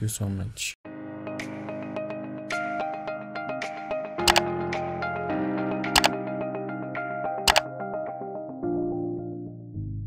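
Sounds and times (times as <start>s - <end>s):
background music sustained notes: 0.9s - 10.0s.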